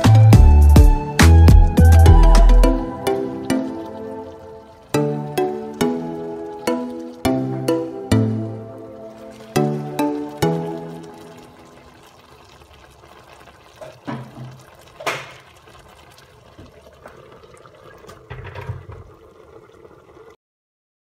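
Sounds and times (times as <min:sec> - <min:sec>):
sauce bubbling in a pan: 0:02.9 - 0:20.4.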